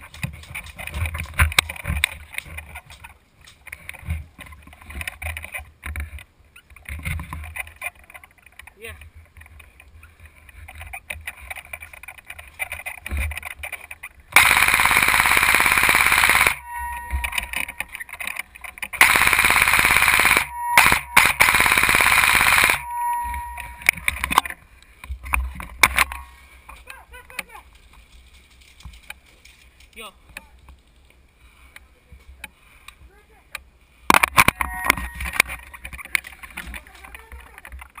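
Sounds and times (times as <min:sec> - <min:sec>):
airsoft rifle automatic bursts: 0:14.4 - 0:16.6, 0:19.0 - 0:22.8.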